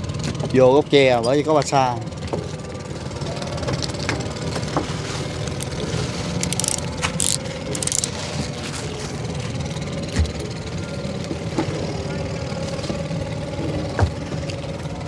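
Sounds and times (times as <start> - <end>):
small boat engine idling: 0.0 - 15.0.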